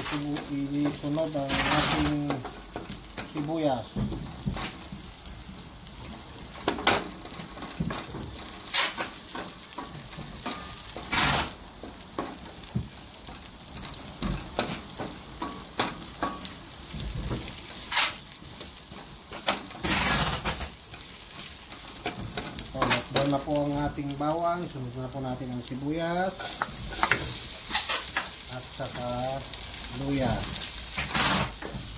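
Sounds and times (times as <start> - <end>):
garlic sizzling in oil: 0.0 - 31.9
wooden spatula scraping pot: 29.9 - 31.9.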